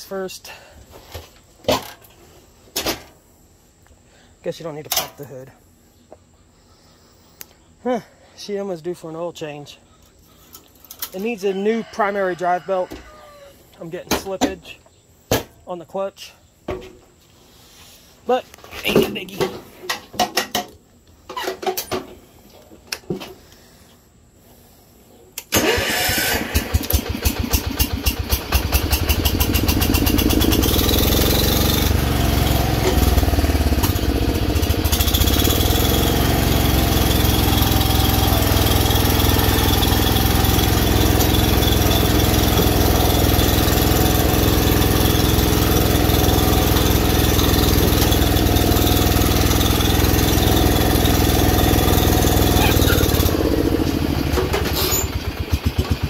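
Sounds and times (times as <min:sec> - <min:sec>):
lawn tractor engine starting and running: 0:10.5 - 0:12.8, 0:25.4 - 0:56.0.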